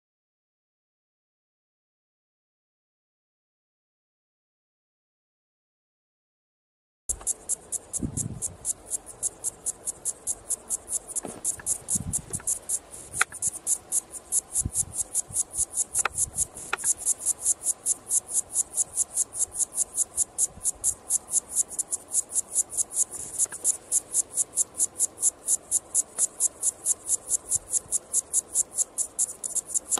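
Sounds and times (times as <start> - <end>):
cicada singing: 7.1 - 29.9.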